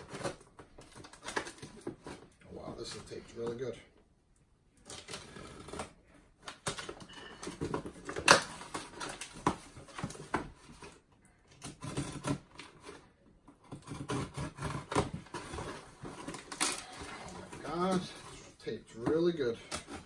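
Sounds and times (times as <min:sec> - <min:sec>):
scissors cutting packing tape: 0:11.5 - 0:13.0, 0:13.6 - 0:17.6.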